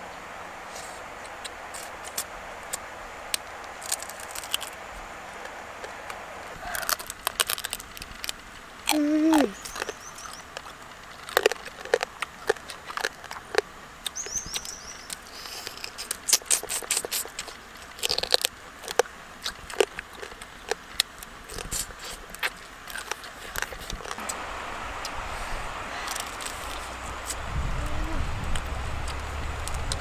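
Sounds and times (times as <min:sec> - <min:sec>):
crab shell cracking: 0:03.4 - 0:04.8, 0:05.8 - 0:24.2
chewing: 0:06.6 - 0:24.4, 0:26.0 - 0:27.4.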